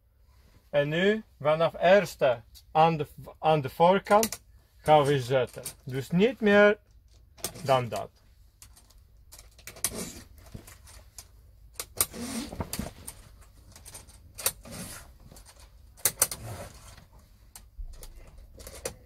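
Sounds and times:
curtain fabric rustling: 0:12.1 - 0:15.8.

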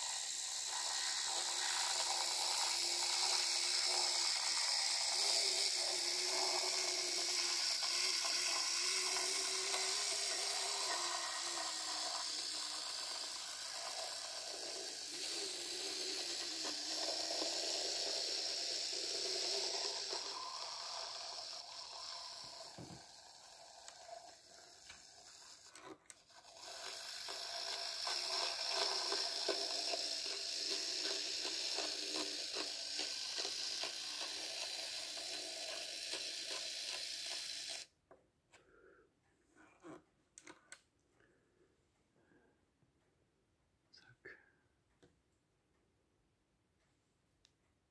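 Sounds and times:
model locomotive motor whirring: 0:00.0 - 0:38.0.

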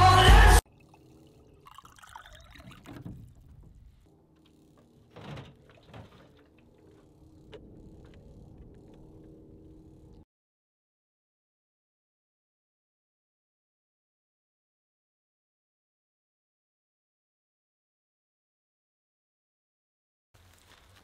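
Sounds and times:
music: 0:00.0 - 0:00.6
water running into a bottle: 0:00.7 - 0:03.5.

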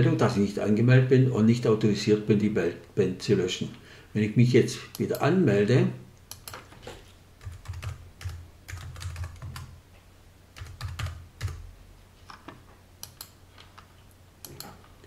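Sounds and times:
computer keyboard typing: 0:07.4 - 0:09.8, 0:10.6 - 0:11.6, 0:13.0 - 0:13.4.

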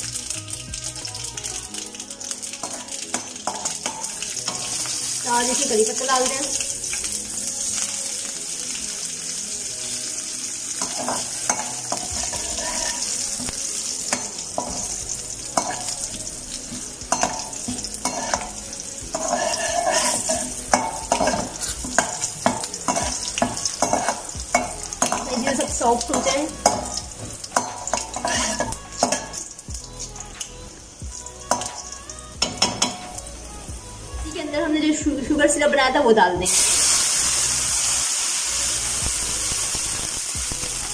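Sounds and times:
spices sizzling in hot oil: 0:00.0 - 0:40.9
metal spoon scraping and clicking pan: 0:10.8 - 0:15.0, 0:15.6 - 0:16.0, 0:16.7 - 0:29.6.

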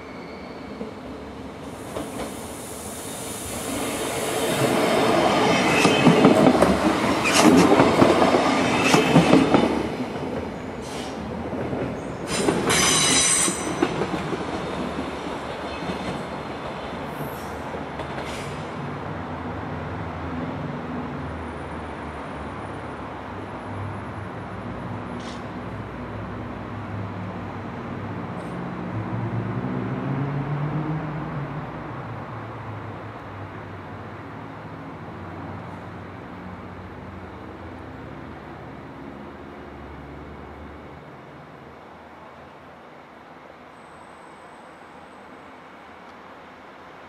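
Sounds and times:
high-pitched wheel squeal: 0:00.0 - 0:01.0, 0:12.3 - 0:13.8
train wheels rumbling and knocking: 0:03.6 - 0:18.9.

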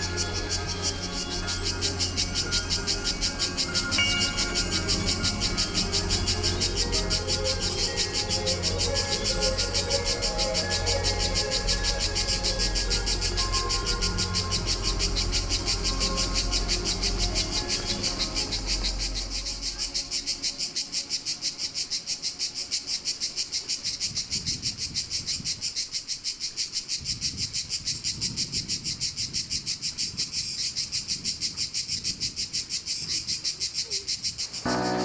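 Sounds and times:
background music: 0:00.0 - 0:23.5, 0:34.7 - 0:35.0
cicadas singing: 0:00.0 - 0:35.0.

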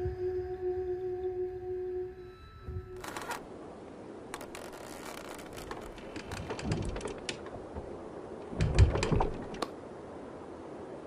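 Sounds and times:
quick clicks and creaks: 0:03.0 - 0:03.4, 0:04.3 - 0:07.6.

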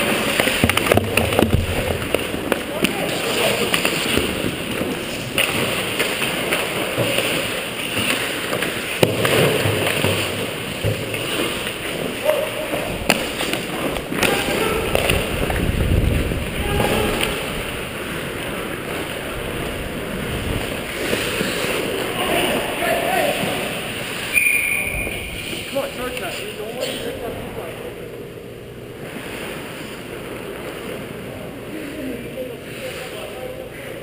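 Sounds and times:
hockey sticks and puck clacking: 0:00.0 - 0:15.8
skate blades scraping ice: 0:00.0 - 0:22.5.

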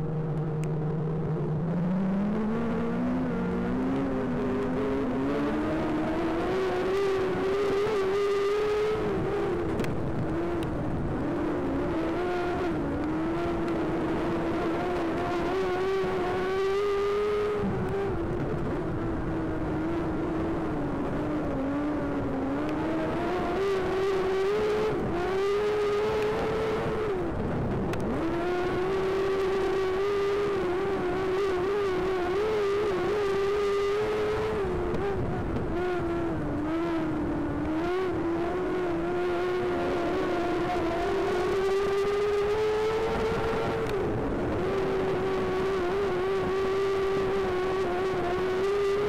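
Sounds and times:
race car engine at high revs: 0:00.0 - 0:49.0.

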